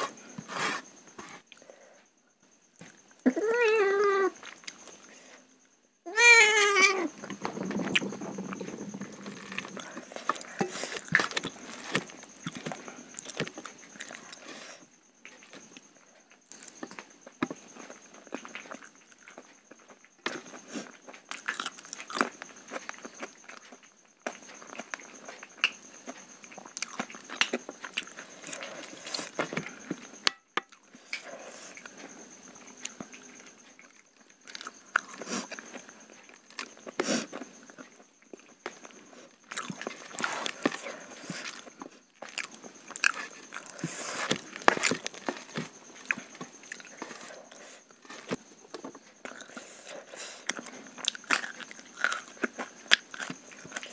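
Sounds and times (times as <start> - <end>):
wet chewing and biting: 50.4 - 53.9.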